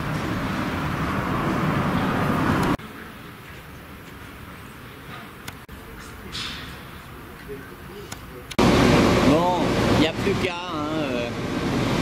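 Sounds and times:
loud vehicle noise: 0:00.0 - 0:03.2, 0:08.5 - 0:12.0
street background: 0:00.0 - 0:12.0.

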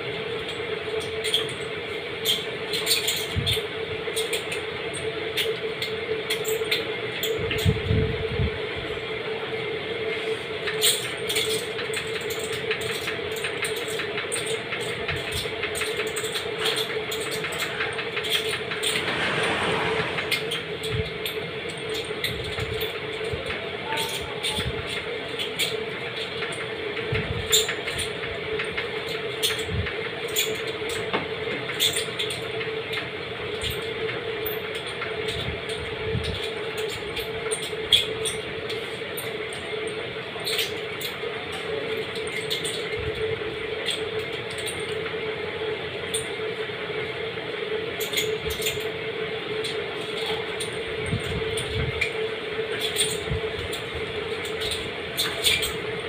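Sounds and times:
steady low hum: 0:00.0 - 0:31.5.

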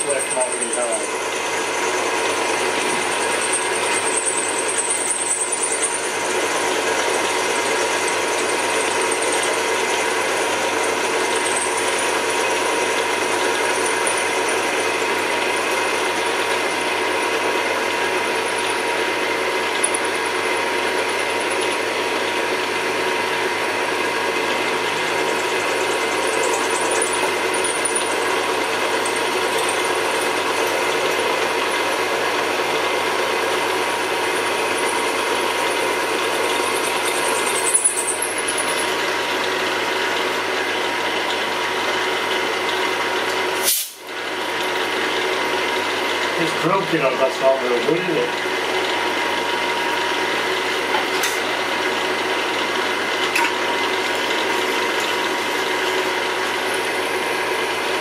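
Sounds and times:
drill press cutting brass: 0:00.0 - 0:44.0.

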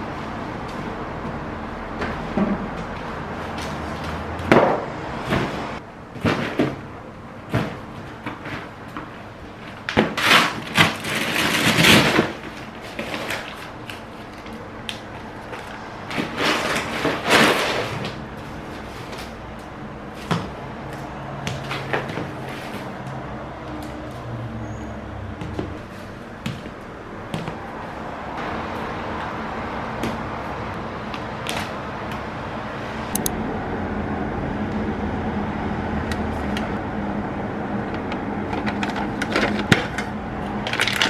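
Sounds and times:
foil bag rustling and crinkling: 0:40.6 - 0:41.0.

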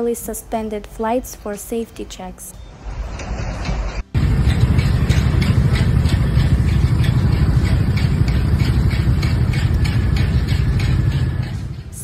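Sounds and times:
road traffic rumble: 0:02.7 - 0:12.0.

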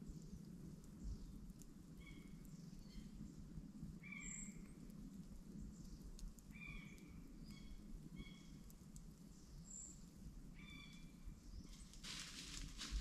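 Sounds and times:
faint ticks: 0:00.0 - 0:10.2
bird calls: 0:06.5 - 0:08.6, 0:10.6 - 0:12.0.

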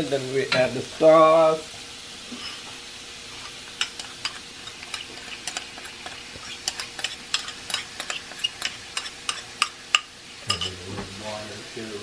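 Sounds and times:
shrimp sizzling and popping in oil: 0:00.0 - 0:11.3
metal spatula stirring: 0:03.4 - 0:10.8.

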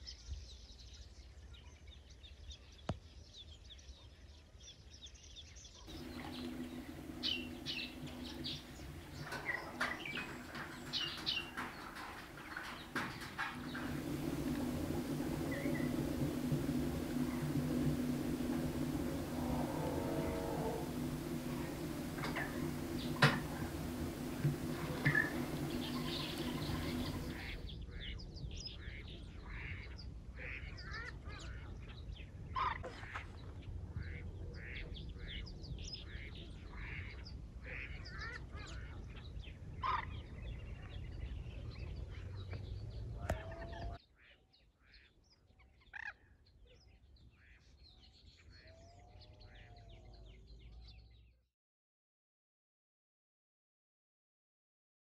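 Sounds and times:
low steady rumble: 0:05.9 - 0:27.6
birds chirping and calling: 0:05.9 - 0:27.7.

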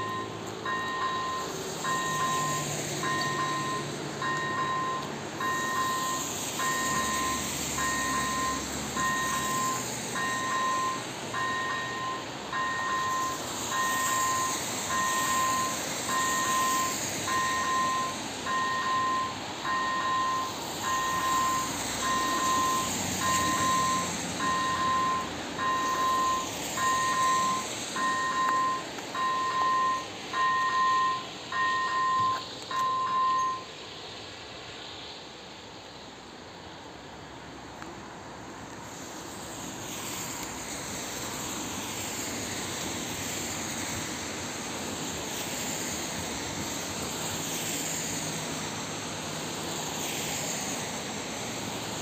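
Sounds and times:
level-crossing warning bell: 0:00.0 - 0:33.8.

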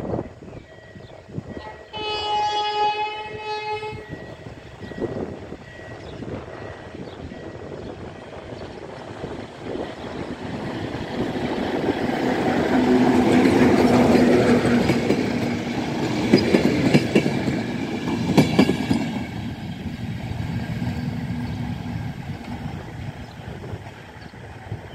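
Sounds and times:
locomotive engine hum: 0:01.2 - 0:24.9
train wheels clacking on rails: 0:04.7 - 0:24.9.

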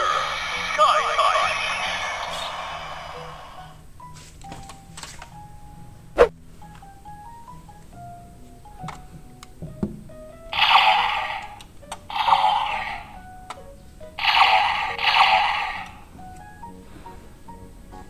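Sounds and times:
noisy electronic effect bursts: 0:10.6 - 0:11.5, 0:14.2 - 0:16.0.

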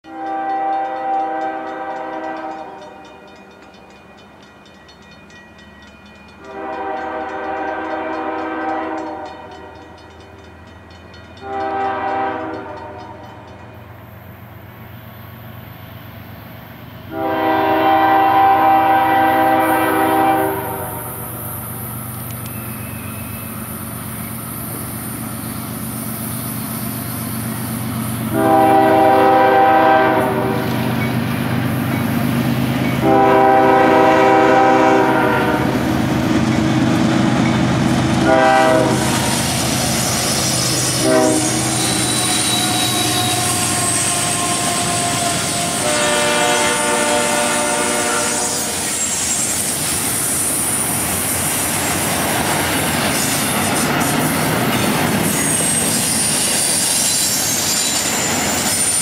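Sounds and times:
locomotive air horn blasts: 0:00.0 - 0:02.9, 0:06.4 - 0:10.0, 0:11.4 - 0:13.3, 0:17.1 - 0:21.3, 0:28.3 - 0:31.0, 0:33.0 - 0:35.9, 0:38.2 - 0:39.4, 0:40.5 - 0:48.9.

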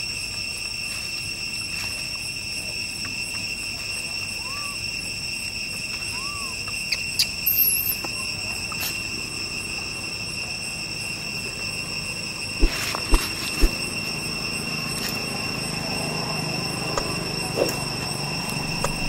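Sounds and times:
insects droning: 0:00.0 - 0:19.0
short chirps and clicks: 0:18.8 - 0:19.0.

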